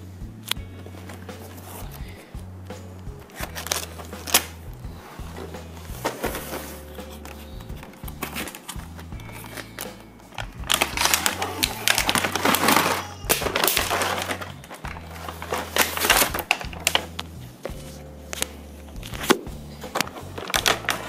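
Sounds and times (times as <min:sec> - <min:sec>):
background music with bass: 0:00.0 - 0:21.0
packaging rustling and crinkling: 0:10.4 - 0:17.3.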